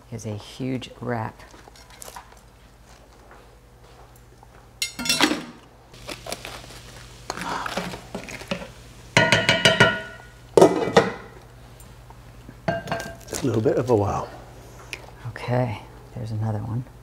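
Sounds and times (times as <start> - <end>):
pan lid and utensils clanking: 4.8 - 5.6, 8.1 - 11.3, 12.7 - 13.3
lettuce leaves crunching: 6.0 - 8.7, 13.0 - 14.2.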